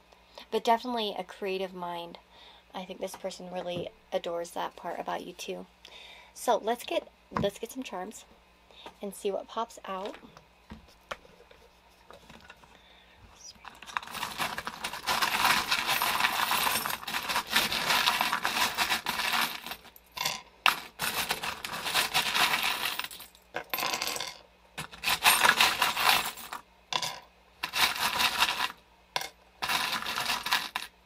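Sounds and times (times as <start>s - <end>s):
metal charms jingling: 13.6s - 20.0s.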